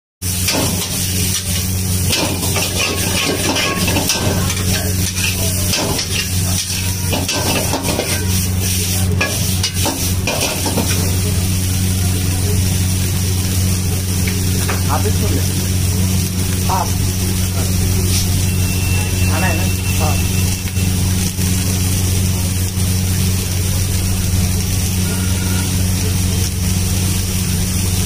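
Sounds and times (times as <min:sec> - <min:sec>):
vegetables sizzling in a wok: 0:00.2 - 0:28.0
metal spatula scraping a pan: 0:00.4 - 0:11.2.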